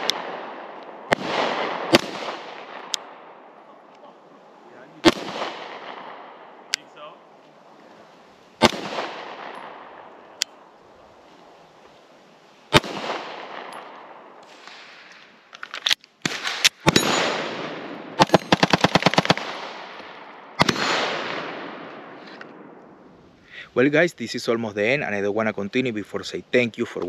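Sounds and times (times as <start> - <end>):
pistol shots with echo: 0.0 - 3.4, 5.0 - 6.8, 8.6 - 10.1, 12.7 - 15.0, 16.2 - 22.8.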